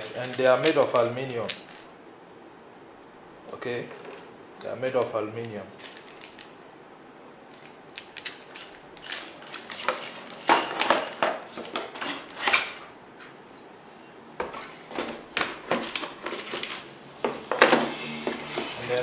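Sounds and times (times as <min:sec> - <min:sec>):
metal brackets knocking and clinking: 0:00.0 - 0:01.9, 0:05.0 - 0:06.6, 0:07.5 - 0:12.8.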